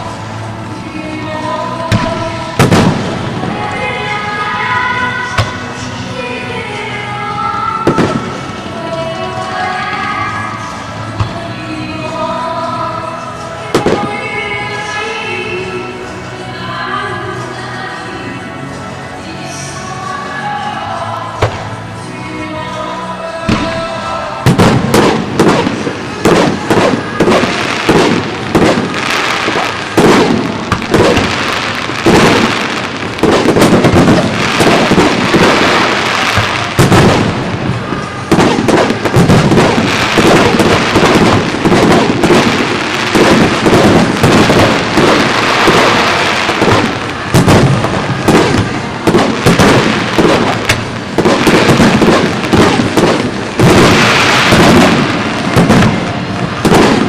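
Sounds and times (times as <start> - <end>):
fireworks bursting: 0.0 - 15.5, 23.4 - 57.0.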